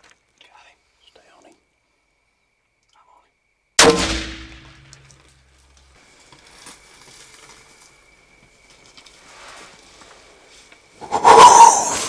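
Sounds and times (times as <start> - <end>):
revolver gunshot with echo: 3.8 - 4.9.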